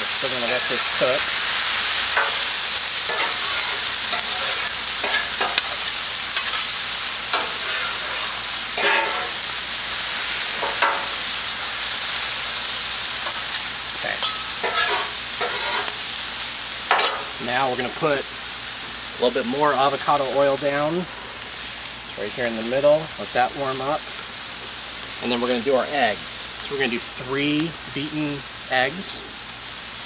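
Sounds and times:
vegetables sizzling on griddle: 0:00.0 - 0:30.0
metal spatulas scraping griddle: 0:03.1 - 0:06.7, 0:07.3 - 0:09.4, 0:14.2 - 0:16.0.

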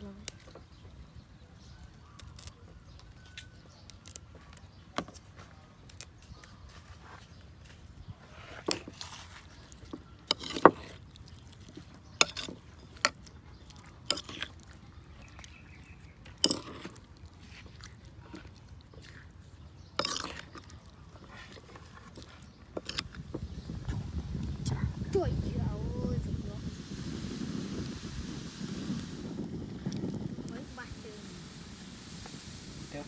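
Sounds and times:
food being moved: 0:08.2 - 0:24.0.

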